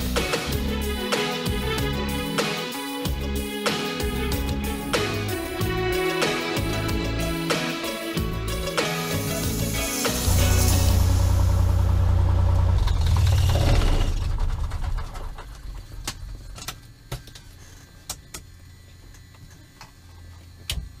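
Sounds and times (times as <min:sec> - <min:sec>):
aircraft engine idling: 0:10.2 - 0:15.7.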